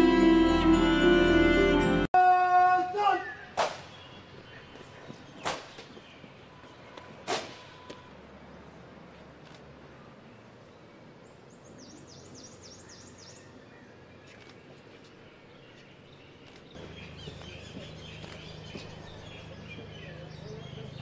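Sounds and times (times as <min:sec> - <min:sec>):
small birds chirping: 0:03.2 - 0:07.9, 0:10.0 - 0:21.0.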